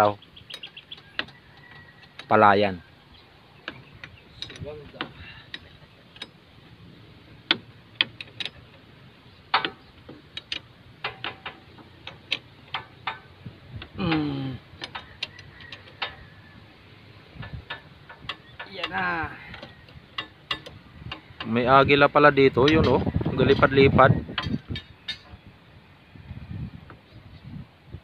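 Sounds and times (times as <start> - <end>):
hand tools clicking on metal: 0.4 - 2.4, 3.6 - 6.4, 7.4 - 8.8, 9.4 - 16.4, 17.4 - 25.4.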